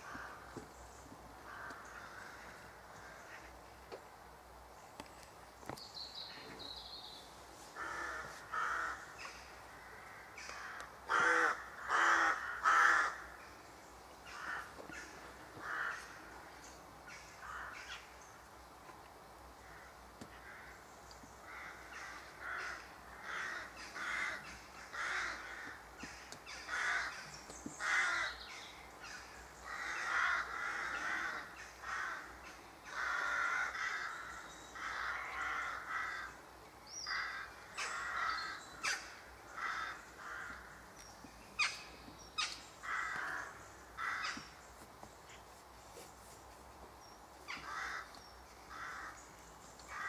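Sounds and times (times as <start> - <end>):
crows cawing: 0.0 - 0.6, 1.4 - 3.6, 7.8 - 13.4, 14.2 - 16.4, 17.1 - 18.1, 19.6 - 20.8, 21.4 - 28.4, 29.0 - 36.4, 37.0 - 41.0, 41.6 - 44.6, 47.5 - 49.3.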